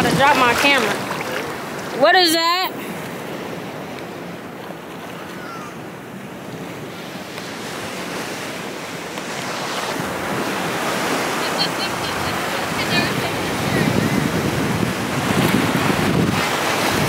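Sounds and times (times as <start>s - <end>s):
wind on microphone: 0.0s - 1.2s, 9.4s - 17.0s
sea surf lapping: 0.0s - 17.0s.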